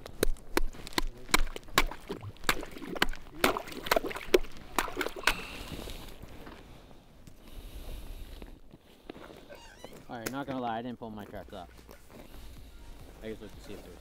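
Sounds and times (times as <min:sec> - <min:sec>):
footsteps crunching through snow: 0:08.8 - 0:14.0.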